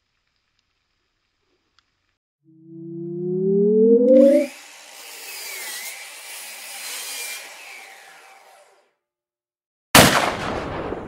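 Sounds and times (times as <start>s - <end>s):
saw-like whirring: 2.6s - 9.0s.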